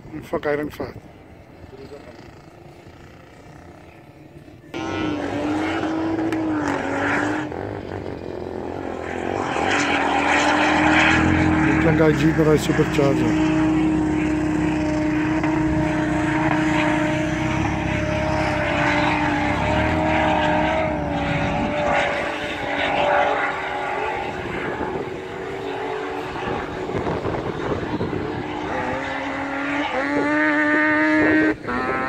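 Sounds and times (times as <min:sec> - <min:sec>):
distant engine revving whine: 0:00.0 - 0:32.0.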